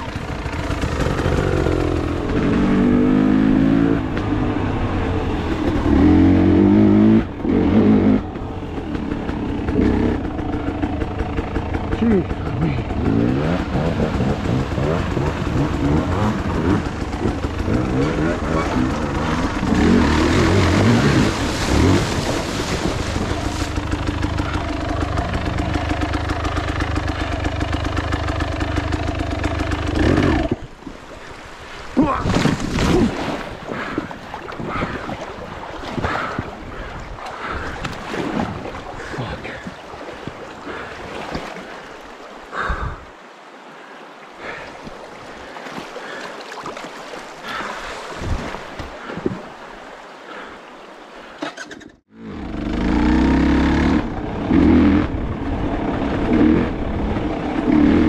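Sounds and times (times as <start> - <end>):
dirt bike engine running: 0.0 - 30.7, 52.1 - 58.0
water rushing and splashing: 0.0 - 58.0.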